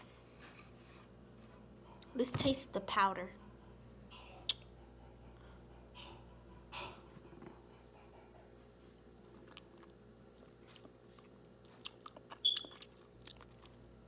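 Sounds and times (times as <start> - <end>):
lips smacking: 4.4 - 4.7.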